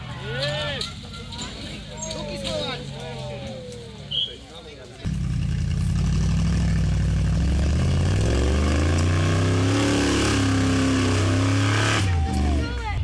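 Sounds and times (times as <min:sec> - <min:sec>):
engine revving up: 0:05.1 - 0:12.8.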